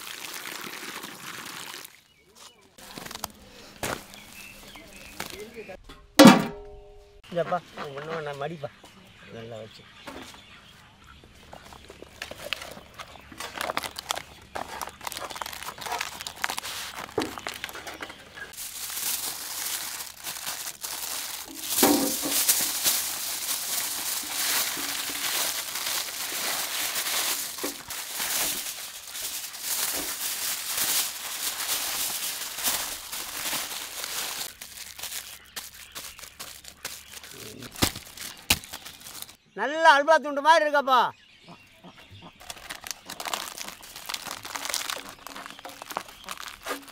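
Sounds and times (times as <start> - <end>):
leaf rustling: 0.0 - 5.6, 12.2 - 39.4, 42.4 - 46.9
aluminium foil crinkling: 2.8 - 5.5, 11.6 - 39.4, 42.4 - 46.9.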